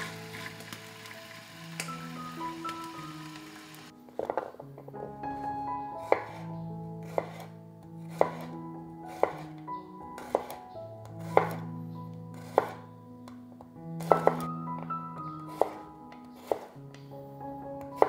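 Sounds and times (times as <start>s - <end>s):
soft background music: 0.0s - 18.0s
knife chopping garlic: 4.2s - 4.6s, 5.3s - 12.9s, 14.0s - 16.9s, 17.8s - 18.0s.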